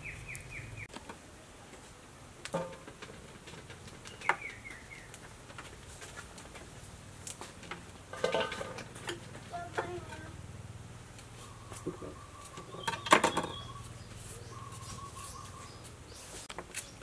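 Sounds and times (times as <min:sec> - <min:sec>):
bird chirping: 0:00.0 - 0:00.9, 0:04.0 - 0:05.2, 0:11.3 - 0:17.0
metal basin clink: 0:08.1 - 0:09.2.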